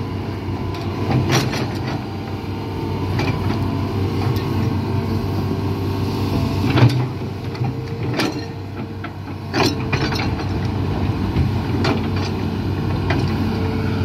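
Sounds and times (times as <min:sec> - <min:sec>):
excavator diesel engine running: 0:00.0 - 0:14.0
metallic clanks and knocks: 0:06.8 - 0:10.6.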